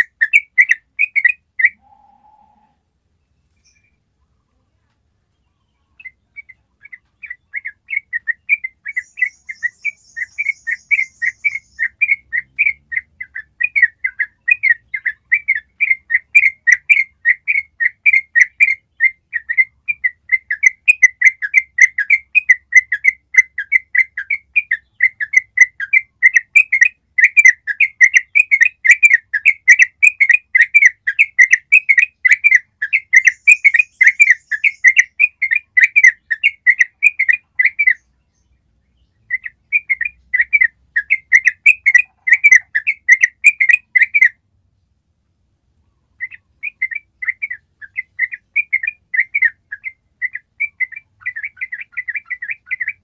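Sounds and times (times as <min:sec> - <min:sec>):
bird singing rapid chirps: 0:00.0 - 0:01.8, 0:05.4 - 0:44.4, 0:46.0 - 0:53.0.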